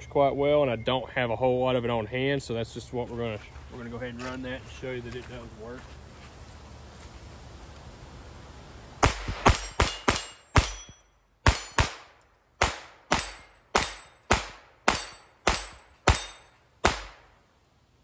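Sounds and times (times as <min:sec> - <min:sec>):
pistol shots with echo: 0:09.0 - 0:17.3.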